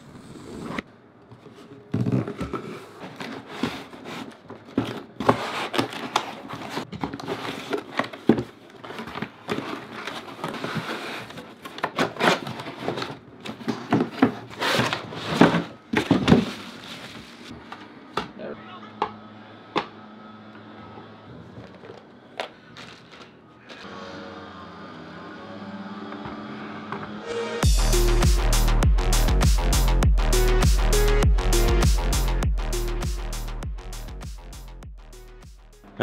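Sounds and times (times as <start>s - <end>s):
cardboard rustling and scraping: 0.0s - 17.9s.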